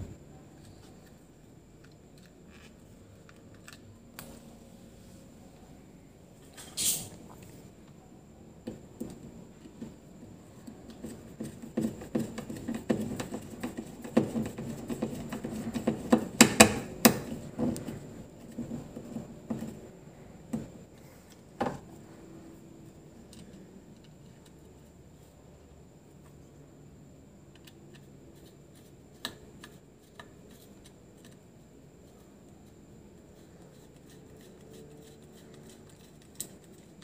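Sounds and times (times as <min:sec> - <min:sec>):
light clicks and scratches: 0:27.5 - 0:37.0.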